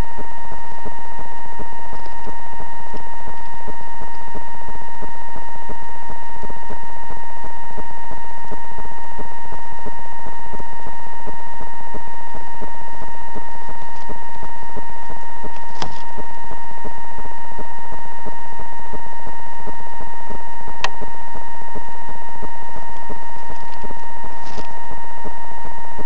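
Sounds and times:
steady high-pitched tone: 0.0s - 26.0s
faint rapid crackling clicks: 0.1s - 6.8s, 13.0s - 17.0s, 22.9s - 24.9s.

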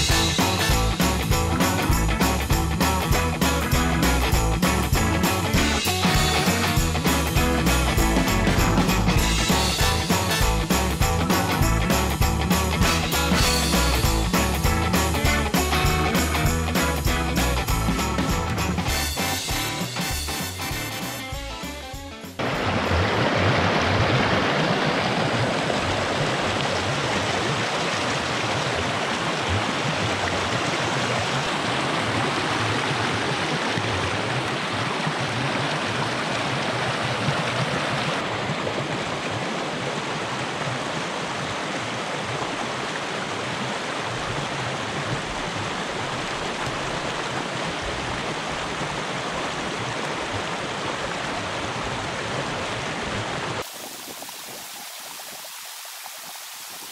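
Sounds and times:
water rushing through dam breach: 22.4s - 56.9s.

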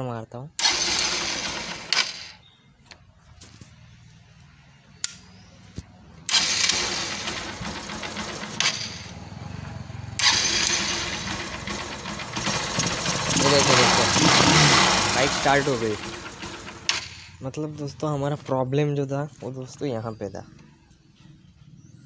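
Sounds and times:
motorcycle engine running: 0.6s - 2.3s, 6.3s - 18.1s.

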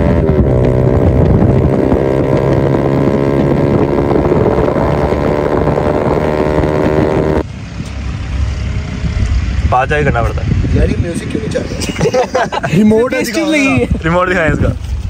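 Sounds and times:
motorcycle engines droning: 0.0s - 12.7s.

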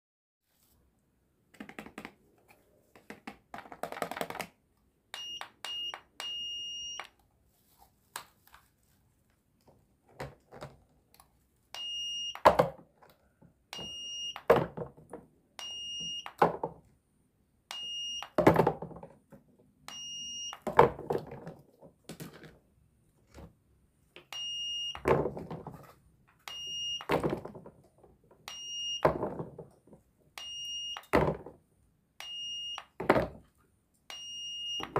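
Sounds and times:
toy scanner beeping: 5.1s - 7.2s, 11.8s - 12.5s, 13.7s - 14.5s, 15.6s - 16.4s, 17.7s - 18.4s, 19.9s - 20.7s, 24.3s - 25.0s, 26.4s - 27.1s, 28.5s - 29.1s, 30.4s - 31.2s, 32.2s - 33.0s, 34.1s - 34.9s.

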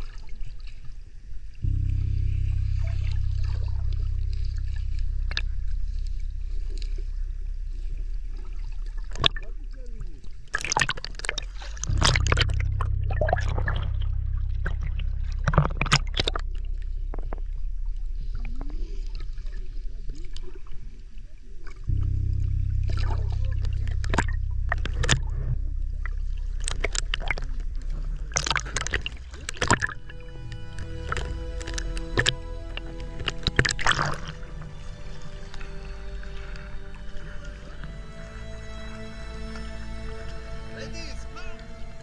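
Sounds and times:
water bubbling underwater: 0.0s - 40.8s
low rumble: 0.0s - 42.0s
steady musical tones: 1.6s - 10.5s, 11.3s - 19.5s, 21.9s - 42.0s
sharp crackling clicks: 22.9s - 34.5s.

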